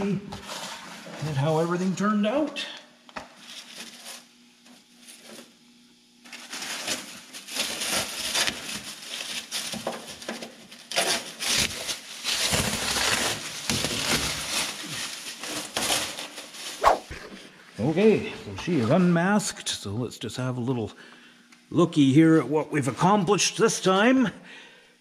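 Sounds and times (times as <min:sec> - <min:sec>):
masking tape rustling and crinkling: 0:06.2 - 0:17.4.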